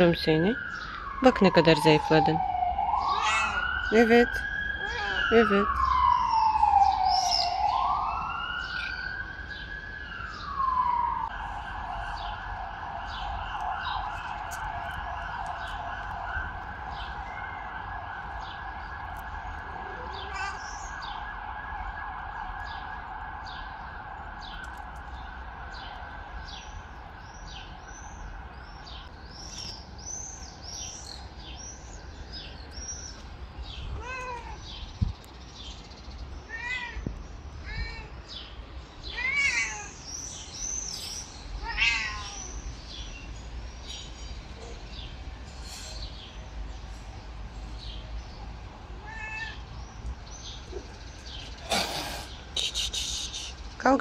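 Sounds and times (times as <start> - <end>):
emergency siren wailing: 0.0 - 29.7
cat meowing: 3.0 - 3.8, 4.8 - 5.3, 20.1 - 20.8, 34.0 - 34.7, 36.5 - 38.1, 39.1 - 40.0, 41.6 - 42.5, 49.0 - 49.6.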